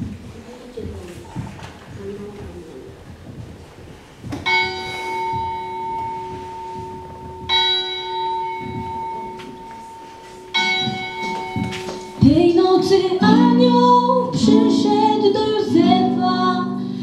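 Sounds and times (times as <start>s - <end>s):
church bell ringing: 4.5s - 12.2s.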